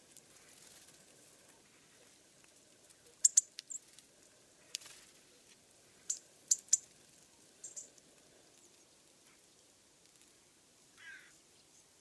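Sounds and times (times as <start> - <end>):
songbirds high call notes: 11.0 - 12.0.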